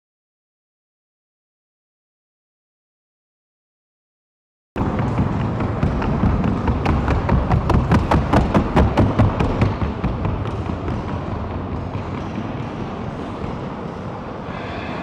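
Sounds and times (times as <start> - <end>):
horse hoofbeats: 4.8 - 14.0
arena noise rumble: 4.8 - 15.0.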